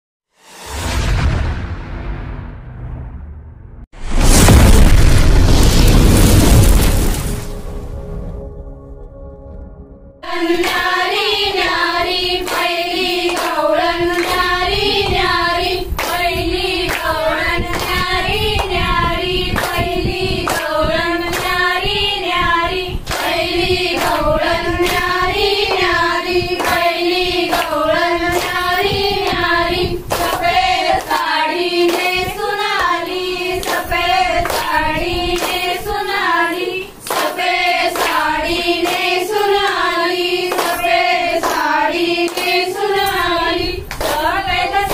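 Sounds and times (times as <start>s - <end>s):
women singing folk song: 10.2s - 44.9s
hands clapping rhythmically: 10.4s - 15.3s, 16.0s - 18.9s, 19.5s - 21.7s, 23.1s - 29.5s, 30.1s - 36.3s, 37.0s - 44.9s.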